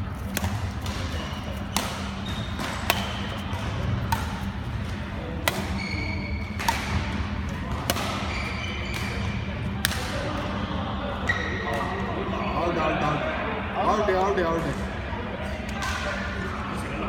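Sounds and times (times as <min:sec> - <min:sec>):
steady low hum: 0:00.0 - 0:11.2
racket hitting shuttlecock: 0:00.2 - 0:10.4
shoes squeaking on wooden court: 0:01.0 - 0:06.7, 0:07.4 - 0:09.4, 0:11.3 - 0:11.8.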